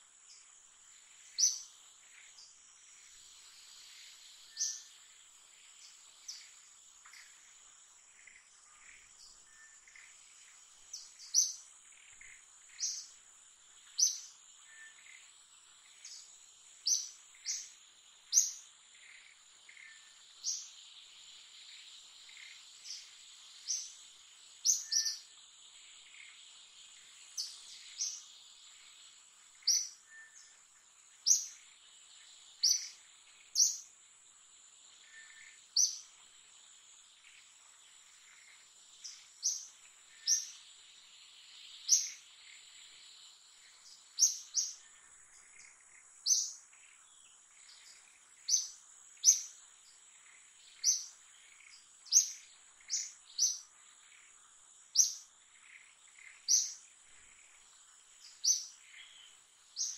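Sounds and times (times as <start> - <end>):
birds chirping: 8.2 - 13.2, 21.6 - 33.9, 37.2 - 59.9.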